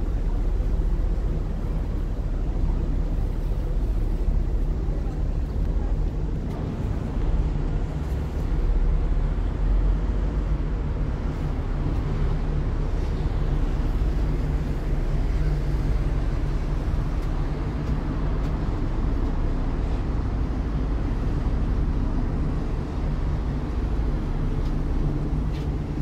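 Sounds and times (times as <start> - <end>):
ferry engine droning: 0.0 - 26.0.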